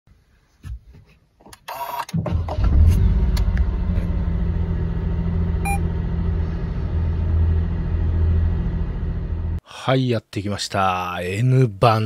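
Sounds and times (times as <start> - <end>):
car engine starting and idling: 1.7 - 9.6
short electronic beep: 5.6 - 5.8.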